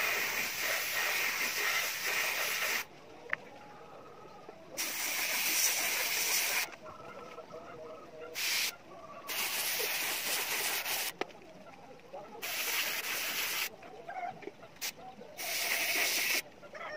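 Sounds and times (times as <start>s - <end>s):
airbrush spraying hiss: 0.0s - 2.9s, 4.8s - 6.7s, 8.4s - 8.7s, 9.3s - 11.2s, 12.4s - 13.7s, 14.8s - 16.4s.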